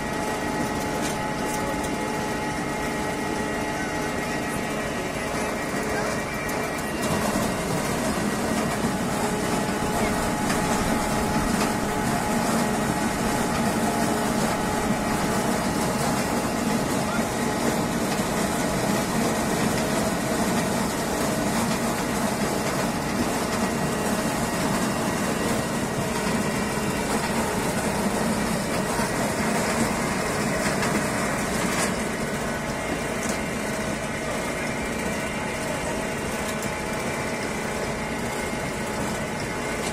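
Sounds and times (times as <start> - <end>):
tractor driven press droning: 22.8 - 39.9.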